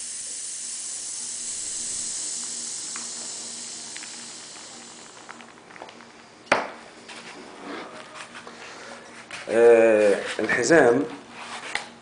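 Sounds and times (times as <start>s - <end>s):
air hissing from valve: 0.0s - 7.3s.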